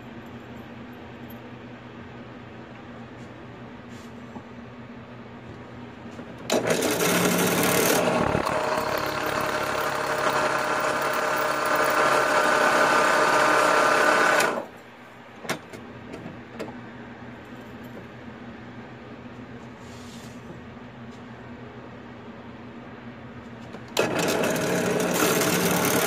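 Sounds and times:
motor low hum: 0:06.2 - 0:14.7
drill bit grinding metal: 0:06.5 - 0:14.7, 0:24.0 - 0:26.0.

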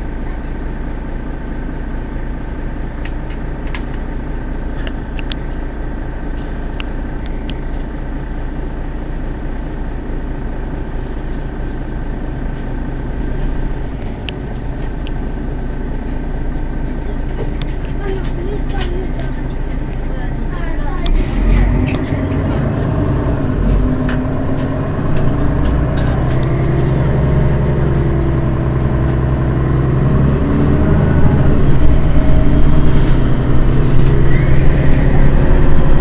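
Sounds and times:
bus diesel engine idling: 0:00.0 - 0:36.0
high whine: 0:19.1 - 0:36.0.

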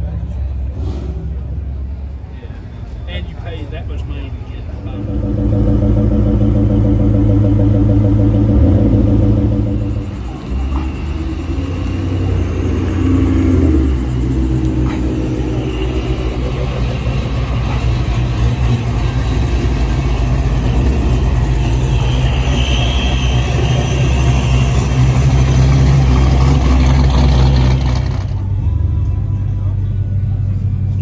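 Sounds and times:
car exhaust idling: 0:04.6 - 0:31.0.

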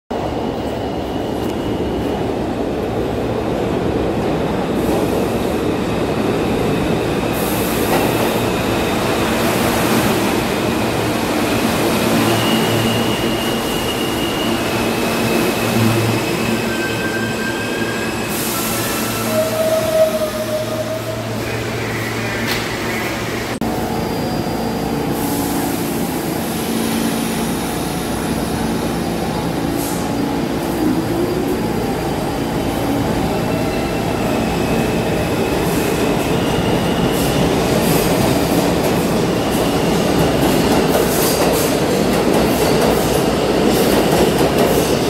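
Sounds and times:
train wheels rumbling on rails: 0:00.1 - 0:45.0
high wheel squeals: 0:12.2 - 0:23.1.

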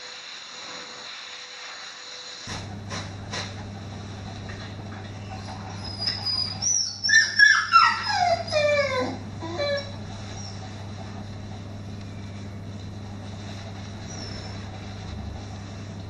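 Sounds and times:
low electrical hum: 0:02.4 - 0:16.0
pet whining cries: 0:05.1 - 0:10.9, 0:14.0 - 0:14.7.

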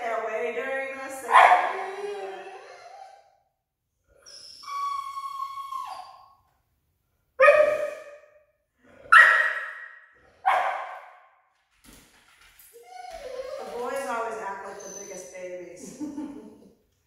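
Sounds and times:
dog barking: 0:01.3 - 0:02.0, 0:07.4 - 0:08.1, 0:09.1 - 0:11.1
puppy whining: 0:01.7 - 0:03.4, 0:04.1 - 0:06.4, 0:12.7 - 0:15.4.

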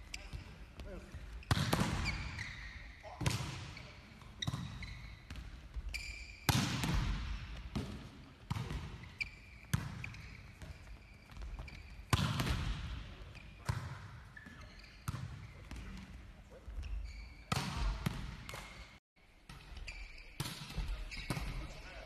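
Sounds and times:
court shoes squeaking: 0:00.0 - 0:22.0
volleyball smacks echoing: 0:06.5 - 0:09.0, 0:12.1 - 0:13.0.

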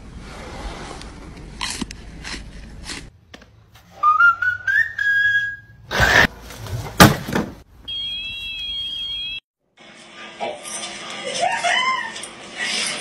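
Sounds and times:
long rising whistle: 0:04.0 - 0:05.8.

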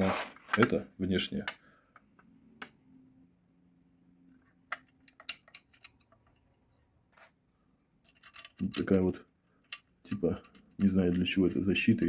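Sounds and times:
lock mechanism clicks and taps: 0:04.7 - 0:06.5, 0:08.0 - 0:09.0, 0:09.6 - 0:11.4.

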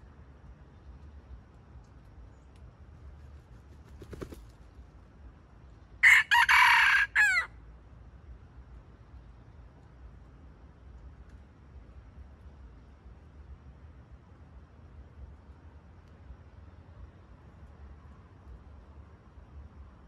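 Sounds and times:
rooster crowing: 0:06.0 - 0:07.5.

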